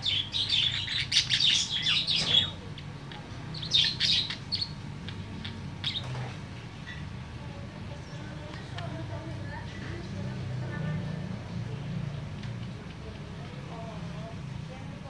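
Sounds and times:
budgerigar chirping and warbling: 0.0s - 2.8s, 3.5s - 6.2s.

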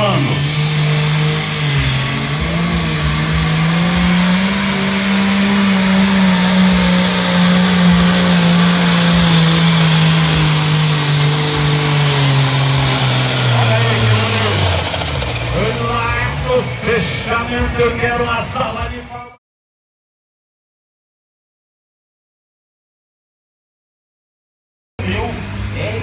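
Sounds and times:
diesel engine running flat out: 0.0s - 19.4s, 25.0s - 26.0s.

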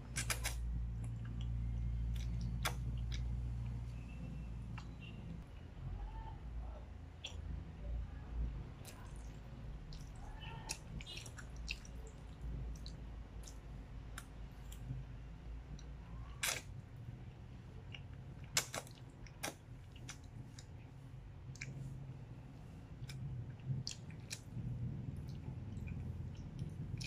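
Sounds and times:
steady low hum: 0.0s - 27.0s
mouth smacks: 0.1s - 3.7s.

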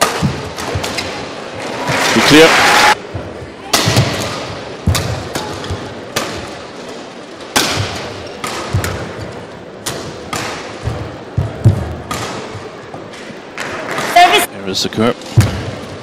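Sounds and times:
racket hitting shuttlecock: 0.0s - 1.2s, 3.7s - 6.6s, 7.5s - 12.6s.

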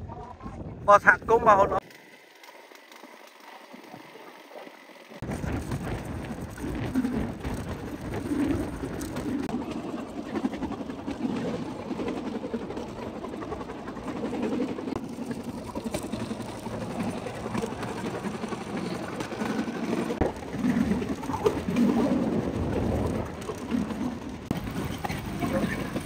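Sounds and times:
small engine running: 1.8s - 26.0s
wooden platform rattling over track: 5.2s - 26.0s.

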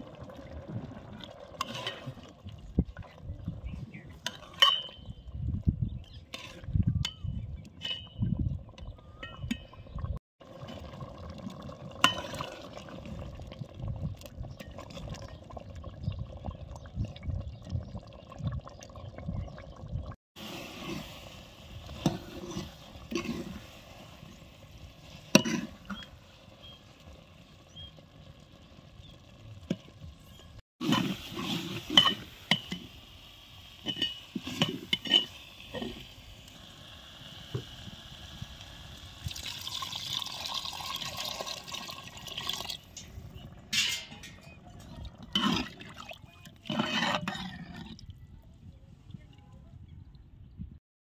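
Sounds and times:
metal spatula scraping pot: 1.6s - 2.3s, 4.1s - 5.2s, 6.2s - 8.4s, 22.0s - 23.8s, 25.1s - 26.8s, 30.3s - 32.9s, 33.8s - 36.1s, 43.7s - 45.8s, 46.6s - 48.0s.

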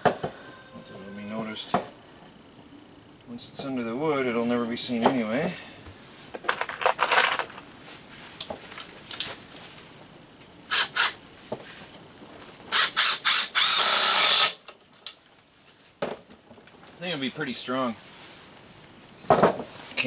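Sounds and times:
cordless driver driving screws: 12.8s - 14.6s.

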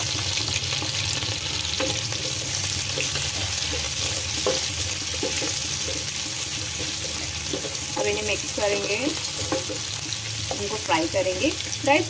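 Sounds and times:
onions sizzling in oil: 0.0s - 12.0s
spatula scraping and tapping pan: 1.7s - 11.4s.

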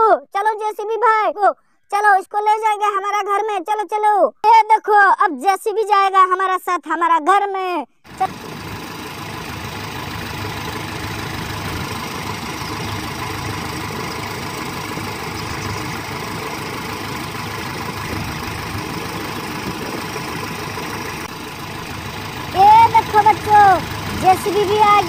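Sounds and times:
engine idling with knocking beat: 8.1s - 25.0s.

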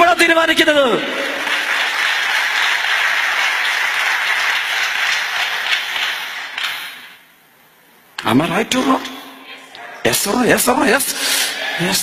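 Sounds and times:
audience applauding: 0.8s - 6.9s.

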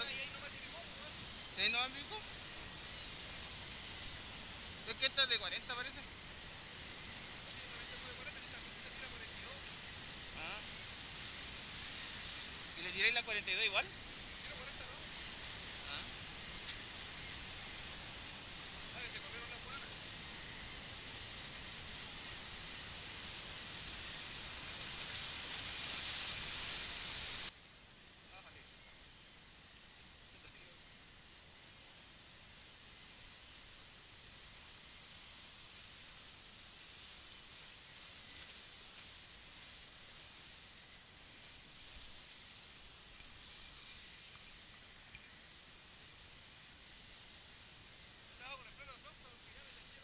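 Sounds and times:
surf washing over rocks: 0.0s - 2.2s, 7.5s - 17.0s.

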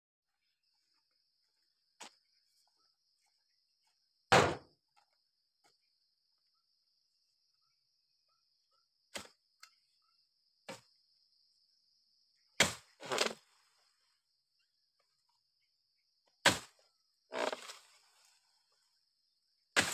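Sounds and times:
insects buzzing: 8.8s - 19.9s
blade chopping palm fronds: 12.6s - 13.4s, 16.4s - 17.9s.

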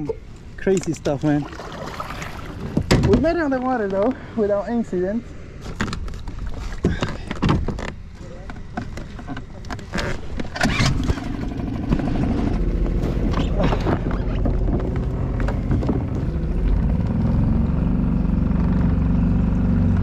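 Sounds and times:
outboard motor running: 10.4s - 20.0s.

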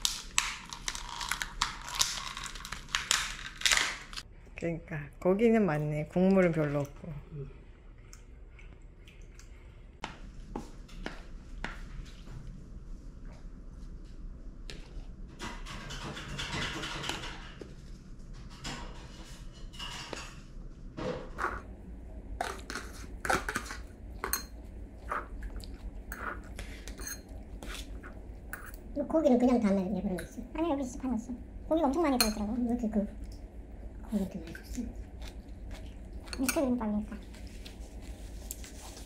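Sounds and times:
cutlery scraping ceramic bowl: 26.1s - 28.8s.

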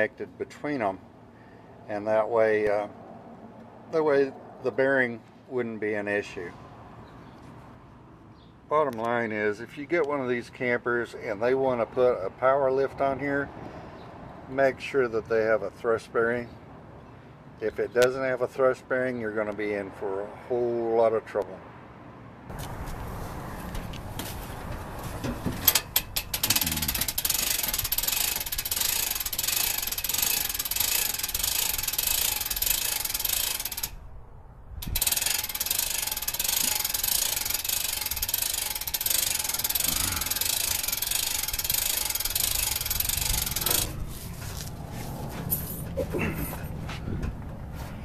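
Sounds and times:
mechanical ratcheting clatter: 25.2s - 34.0s, 34.8s - 44.0s.

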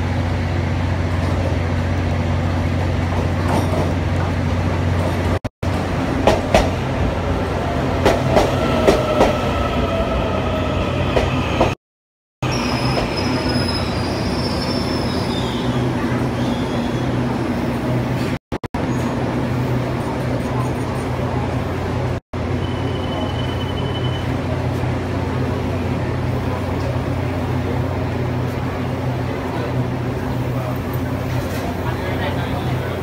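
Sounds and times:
electric train hum: 0.0s - 11.8s
high brake squeals: 12.4s - 17.2s, 22.5s - 24.5s.

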